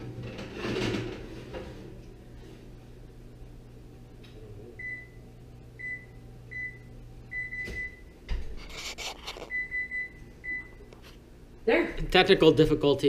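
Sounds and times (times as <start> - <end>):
oven control panel beeping: 4.8 - 8.2, 9.5 - 10.9.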